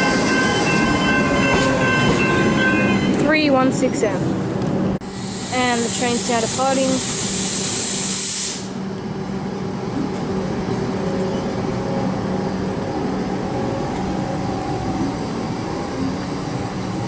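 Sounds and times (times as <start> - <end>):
electric train hum and rumble: 0.0 - 17.0
train air hiss: 5.0 - 8.9.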